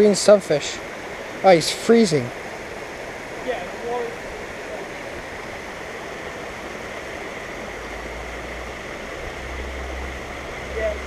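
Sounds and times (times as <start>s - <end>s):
water rushing down a stream: 0.0s - 11.0s.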